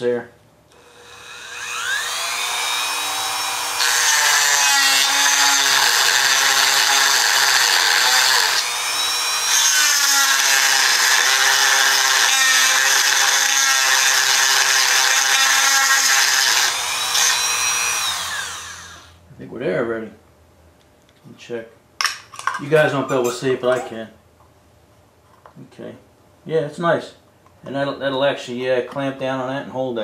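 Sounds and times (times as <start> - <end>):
rotary tool grinding metal: 0.8 - 19.1.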